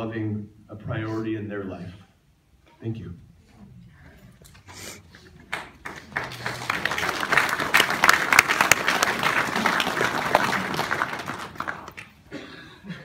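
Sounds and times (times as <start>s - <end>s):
audience applauding: 5.3s - 12.3s.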